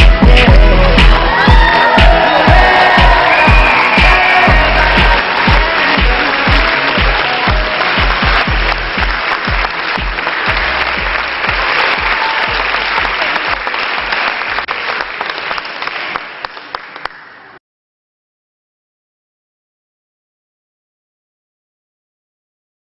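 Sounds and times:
pop music with steady beat: 0.0s - 12.6s
crowd applauding: 0.0s - 17.6s.

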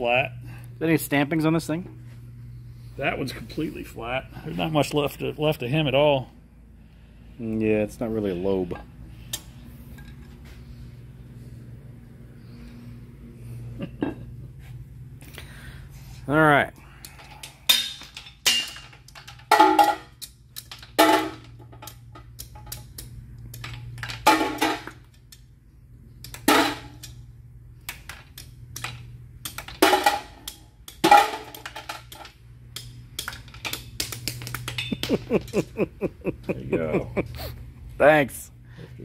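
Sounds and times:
steady low hum: 0.0s - 39.0s
metal clanks and clinks: 17.0s - 25.4s, 28.1s - 35.6s.

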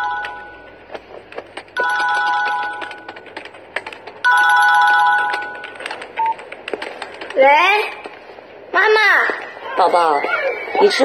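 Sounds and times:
mobile phone ringing: 0.0s - 1.1s, 1.7s - 6.5s.

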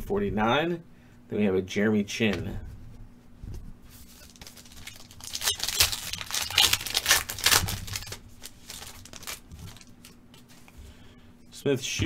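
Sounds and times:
foil wrapper crinkling and tearing: 4.0s - 10.2s.

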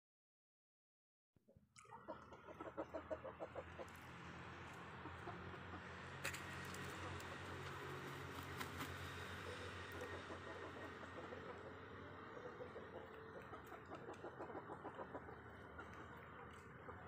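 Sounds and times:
rooster clucking: 1.8s - 4.0s, 4.7s - 6.0s, 9.4s - 17.0s.

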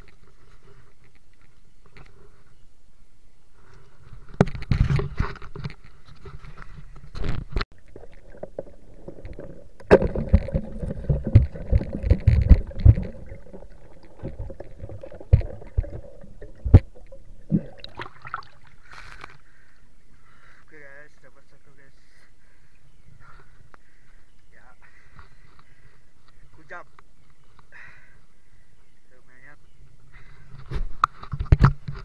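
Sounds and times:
fishing tackle knocking and rubbing: 4.3s - 17.3s
river water splashing: 7.8s - 19.4s.

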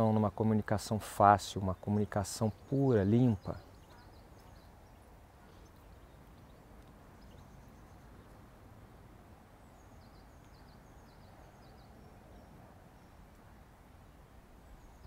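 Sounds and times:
small bird chirping: 2.4s - 8.5s, 9.6s - 13.4s.

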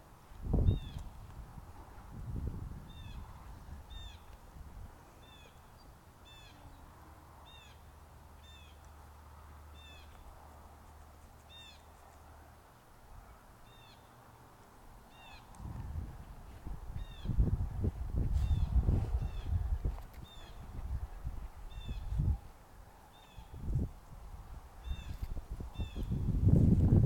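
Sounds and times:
wind rumble on microphone: 0.3s - 5.5s, 15.5s - 27.0s.

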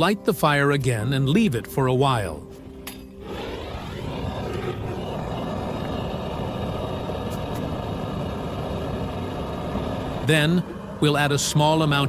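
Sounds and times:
gas torch flame rushing: 2.6s - 12.0s.

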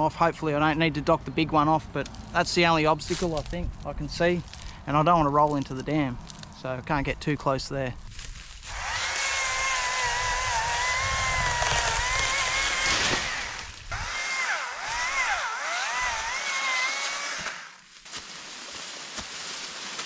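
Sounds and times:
chainsaw cutting branch: 8.6s - 20.0s.

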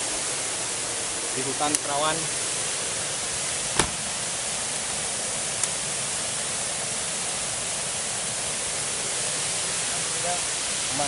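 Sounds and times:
steady hiss: 0.0s - 11.0s
sharp click: 3.8s - 4.0s.

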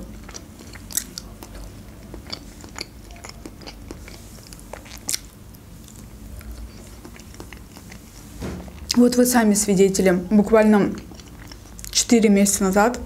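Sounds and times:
person chewing soft food: 0.0s - 9.0s, 10.8s - 12.0s.

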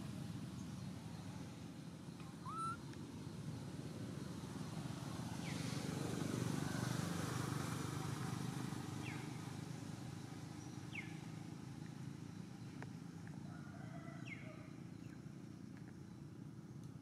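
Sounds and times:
passing vehicle engine rumble: 0.0s - 13.5s.

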